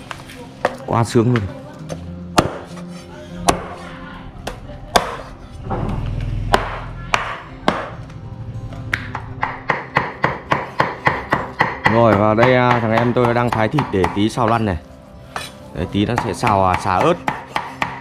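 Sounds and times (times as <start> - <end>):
background music: 0.0 - 18.0
knife chopping on cutting board: 2.4 - 3.8, 4.9 - 5.3, 9.0 - 14.6, 15.4 - 18.0.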